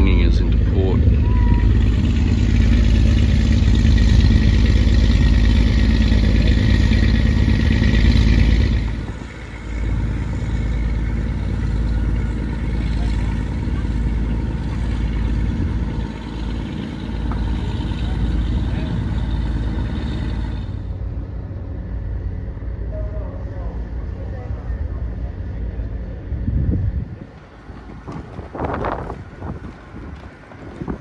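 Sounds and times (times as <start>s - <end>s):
wind buffeting microphone: 26.2s - 31.0s.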